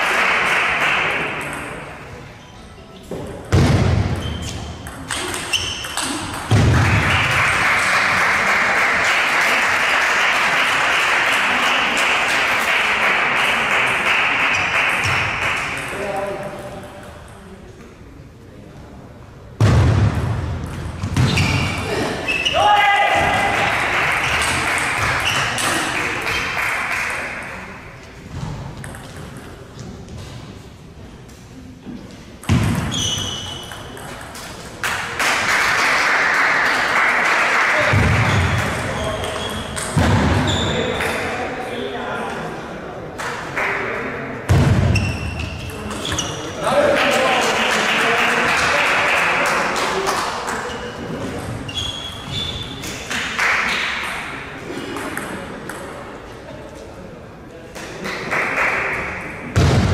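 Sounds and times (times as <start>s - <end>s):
table tennis balls clicking: 4.8s - 6.7s
brief squeak: 5.4s - 6.1s, 32.9s - 33.8s, 51.7s - 52.8s.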